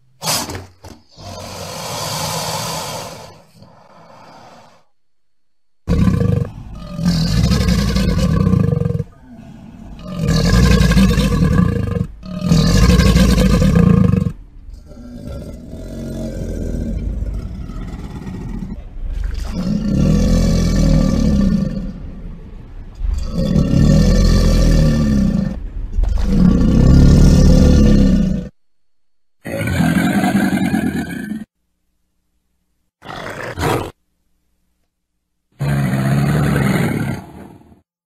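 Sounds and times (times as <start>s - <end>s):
crocodile calling: 29.5s - 31.5s.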